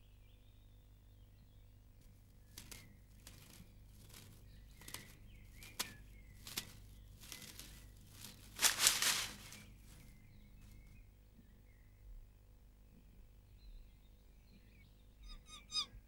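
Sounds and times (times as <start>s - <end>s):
faint bird chirps: 0.0s - 12.3s, 12.9s - 16.0s
leaves and undergrowth rustling: 2.0s - 11.1s.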